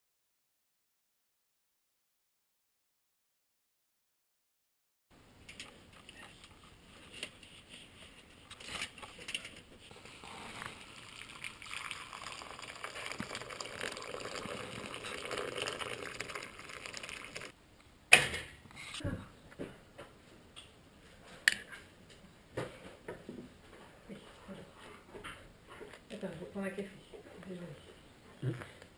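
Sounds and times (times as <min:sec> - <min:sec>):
water pouring into bowl: 0:09.9 - 0:17.6.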